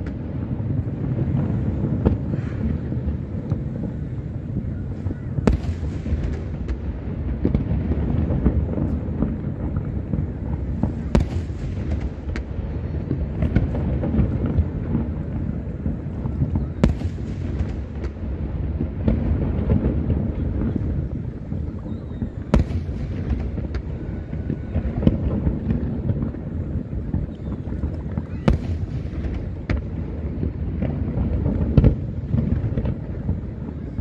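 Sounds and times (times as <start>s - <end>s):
fireworks booming: 0.0s - 34.0s
sharp firework cracks: 0.0s - 34.0s.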